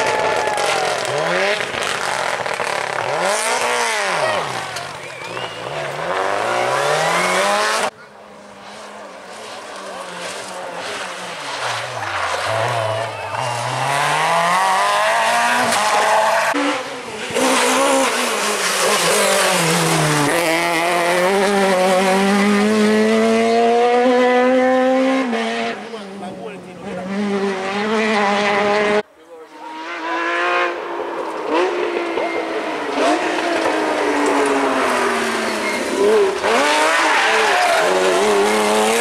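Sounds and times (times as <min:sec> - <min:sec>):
rally car engines revving: 0:00.0 - 0:39.0.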